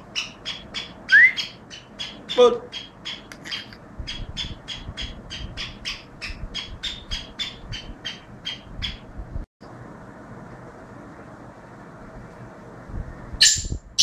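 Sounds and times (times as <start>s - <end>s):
bird squawking calls: 0.0s - 9.0s.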